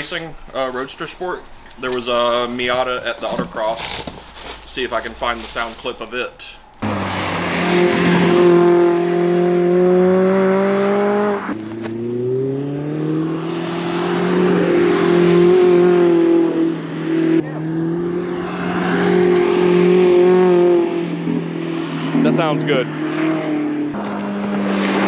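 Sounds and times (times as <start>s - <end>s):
car engine at high revs: 6.8s - 25.0s.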